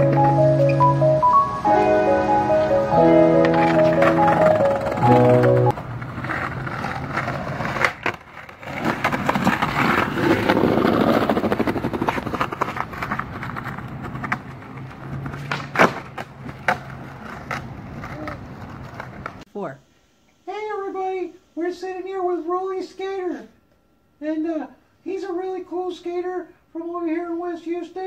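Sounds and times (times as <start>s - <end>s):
skateboard clacks: 0.0s - 0.8s, 3.4s - 19.4s
skateboard wheels rumbling: 0.0s - 19.4s.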